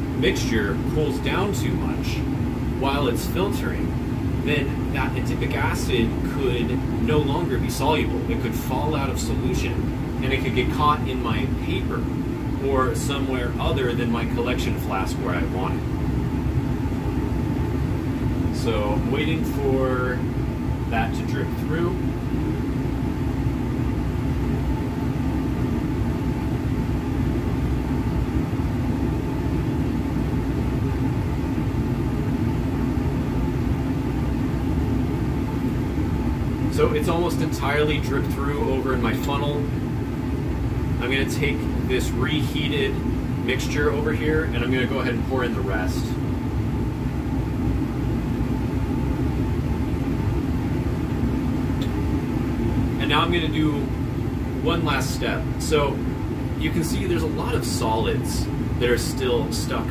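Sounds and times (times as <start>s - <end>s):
faint low hum: 0.0s - 59.9s
fume hood ventilation airflow: 0.0s - 59.9s.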